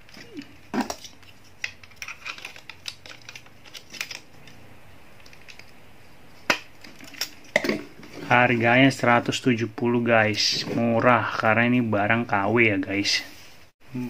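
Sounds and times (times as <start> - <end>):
plastic toy parts clicking and rattling: 0.0 - 4.6, 5.2 - 5.8.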